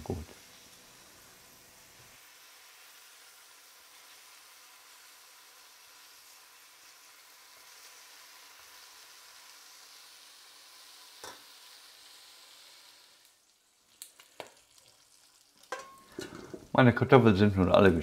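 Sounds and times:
bacon sizzling in a pot: 0.0s - 18.0s
tongs clinking on metal pot: 15.7s - 16.5s.

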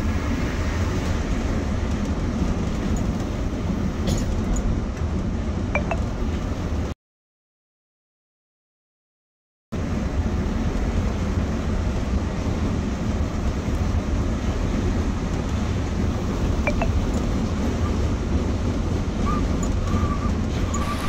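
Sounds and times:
engine and road drone: 0.0s - 6.9s, 9.8s - 21.0s
wind noise: 10.1s - 21.0s.

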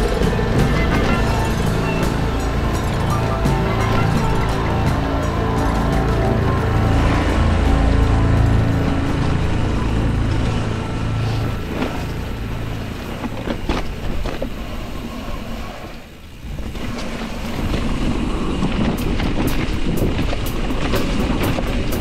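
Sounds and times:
bike rushing down dirt trail: 0.0s - 22.0s
bike knocking and rattling: 16.6s - 22.0s.

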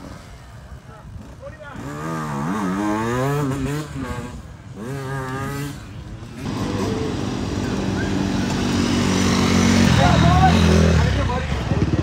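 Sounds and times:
several dirt bike engines running: 0.0s - 12.0s
dirt bike engine revving: 1.1s - 12.0s.

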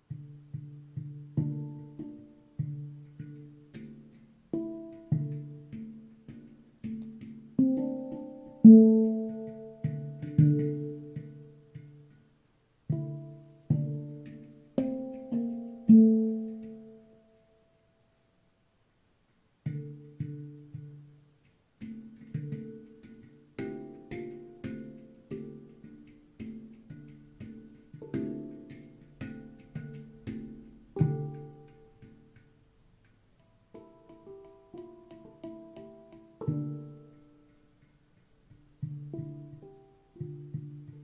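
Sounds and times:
handpan melody: 0.0s - 18.0s, 19.6s - 41.0s.

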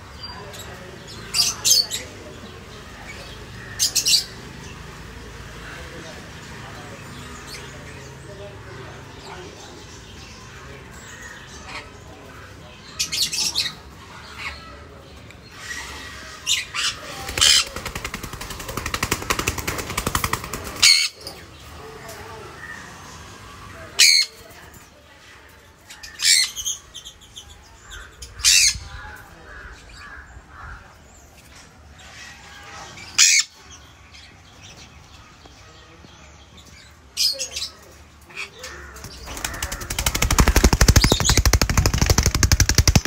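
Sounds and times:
rattling wing flutter: 39.1s - 43.0s.

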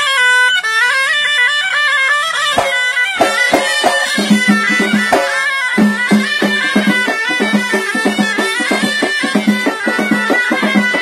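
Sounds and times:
reedy wind instrument melody: 0.0s - 11.0s
quick drum beat: 2.6s - 11.0s.

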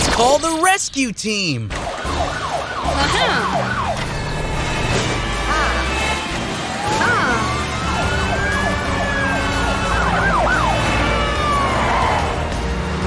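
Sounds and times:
cartoon siren wailing: 1.7s - 4.3s, 6.7s - 12.4s.

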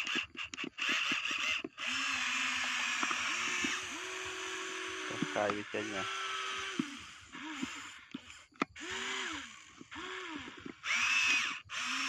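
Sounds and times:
small electric motors whirring: 0.0s - 12.0s.

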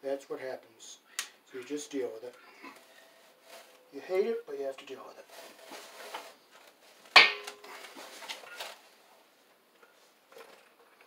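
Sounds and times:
scraping and rustling of cable: 1.6s - 4.2s, 5.0s - 11.0s.

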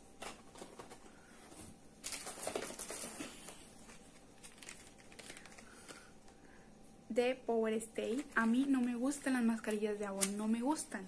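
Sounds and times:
cardboard boxes rustling: 0.2s - 5.6s
packaging rummaging: 0.2s - 6.2s.

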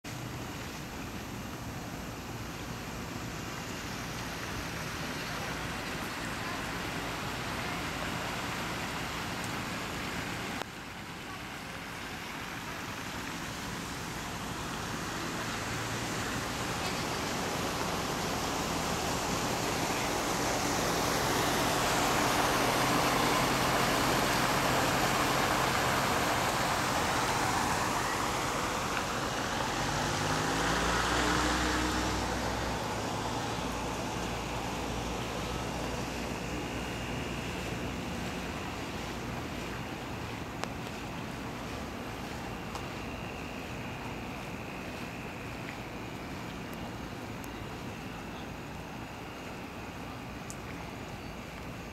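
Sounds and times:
tyres hissing on wet road: 0.0s - 51.9s
vehicle engine hum: 0.0s - 51.9s.

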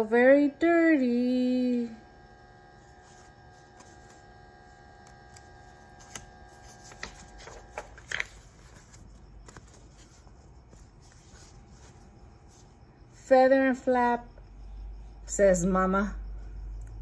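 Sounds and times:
faint steady hum: 0.0s - 17.0s
paper page rustling: 2.8s - 4.4s, 5.0s - 12.7s.

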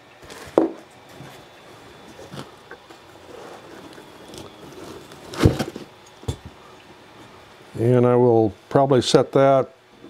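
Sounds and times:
foam packing handling noise: 0.2s - 6.6s.

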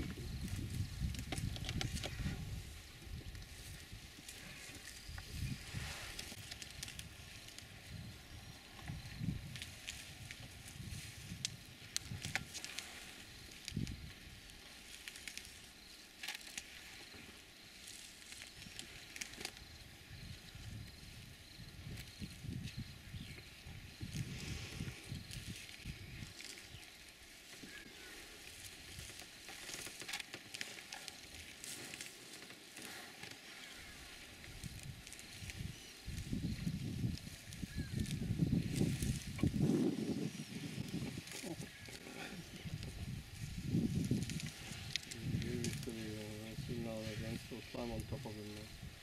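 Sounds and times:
grass tearing and chewing: 8.8s - 19.8s, 24.1s - 48.1s.

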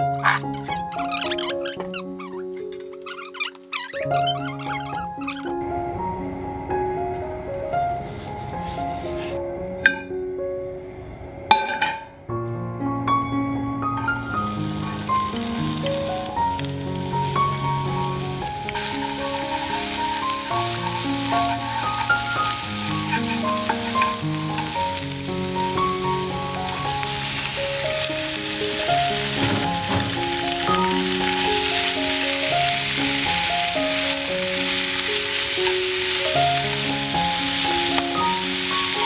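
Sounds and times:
shallots sizzling in hot oil: 0.0s - 5.8s, 14.0s - 39.0s
background music: 0.0s - 11.6s, 12.2s - 39.0s.

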